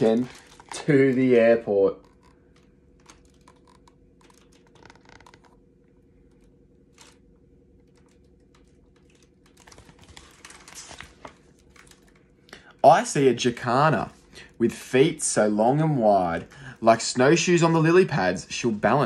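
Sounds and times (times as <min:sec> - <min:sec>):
paper rustling: 0:00.0 - 0:05.5, 0:06.8 - 0:12.3
low steady hum: 0:00.0 - 0:19.0.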